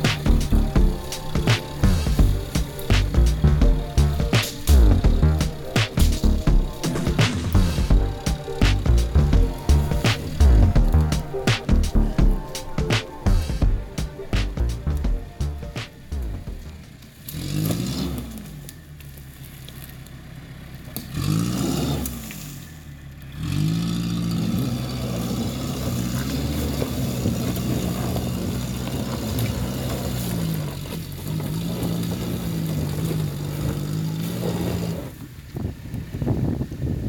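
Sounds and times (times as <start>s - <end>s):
sharp cracks and clatter: 0.0s - 12.0s
pickup engine revving: 0.0s - 35.4s.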